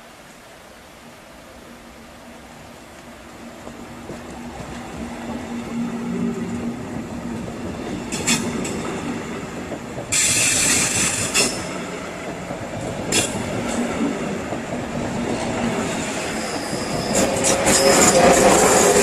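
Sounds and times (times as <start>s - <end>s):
train rumbling and braking: 3.2s - 19.0s
high hiss-like screech: 15.9s - 19.0s.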